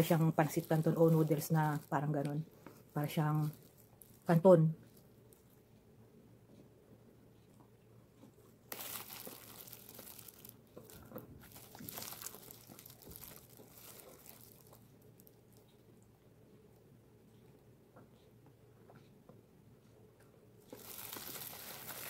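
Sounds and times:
food packaging crinkling: 0.0 - 5.0, 8.7 - 15.4, 20.7 - 22.0.

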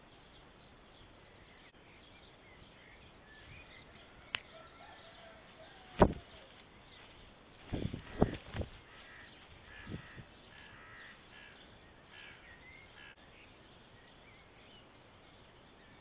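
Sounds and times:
birds chirping: 0.0 - 16.0
stork wings flapping: 7.6 - 9.3.

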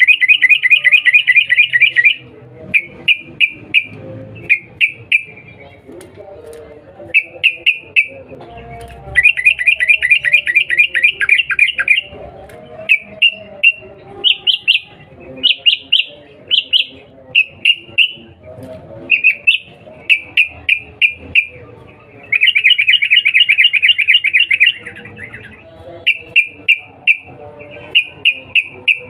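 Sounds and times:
bird chattering calls: 19.1 - 29.0.

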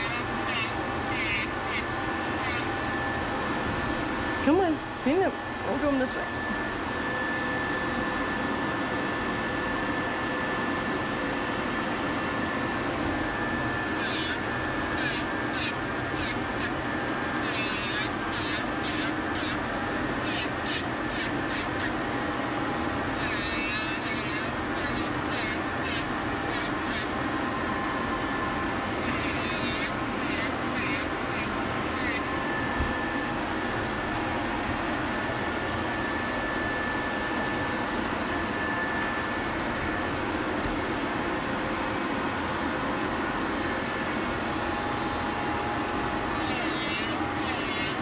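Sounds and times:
grinding on dog nails: 0.0 - 2.8, 14.0 - 16.8, 17.4 - 19.6, 20.2 - 22.0, 23.2 - 27.1, 29.0 - 32.3, 46.3 - 48.0
rotary nail grinder whining: 0.0 - 6.6, 12.6 - 33.4, 44.4 - 48.0.

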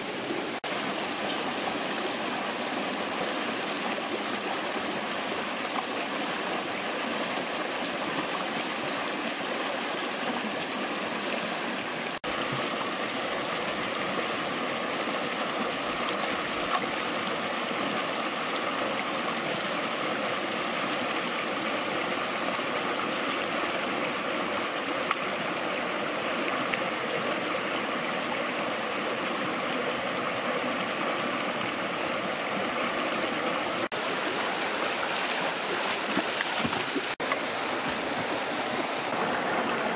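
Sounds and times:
stream rushing over rocks: 0.0 - 39.9.

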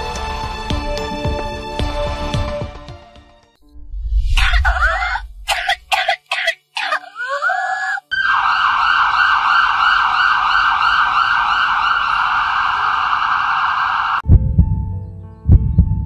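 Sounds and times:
ambulance siren warbling: 8.0 - 14.2.

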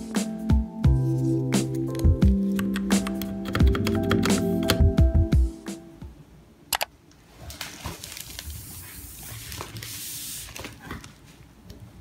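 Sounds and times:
quick clicks: 6.7 - 6.9
plastic packaging rustling: 7.4 - 11.4.

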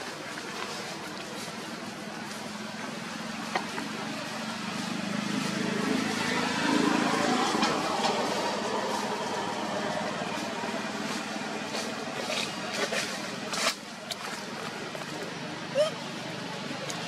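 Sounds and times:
vehicle engine running: 0.1 - 17.0.

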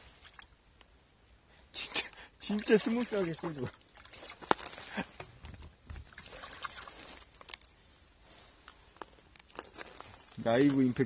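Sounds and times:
fish splashing in shallow water: 2.5 - 7.7.

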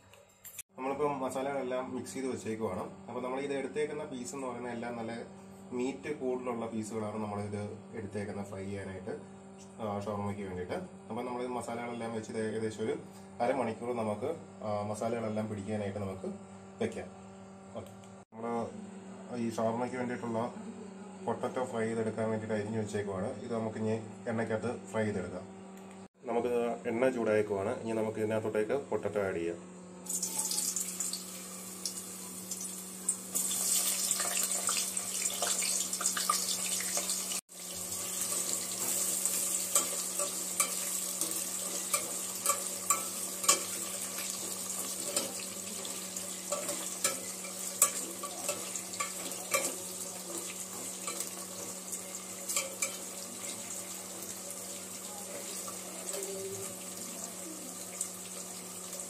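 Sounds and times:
potatoes deep-frying in oil: 30.1 - 59.0.

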